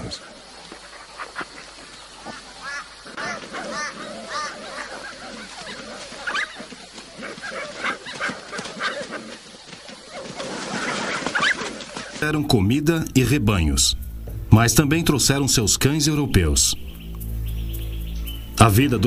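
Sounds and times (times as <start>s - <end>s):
pups yelping and squealing: 2.6s - 12.2s.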